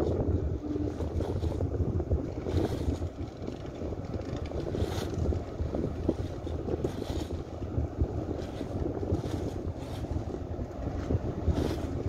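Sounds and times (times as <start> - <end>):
boat engine rumble: 0.0 - 12.0
wind buffeting microphone: 0.0 - 12.0.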